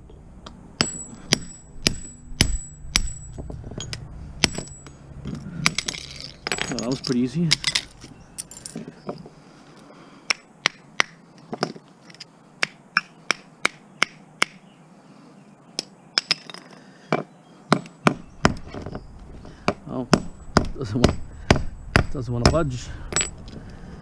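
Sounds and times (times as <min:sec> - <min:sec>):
hand tools tapping on metal: 0:00.4 - 0:09.3, 0:15.8 - 0:23.8.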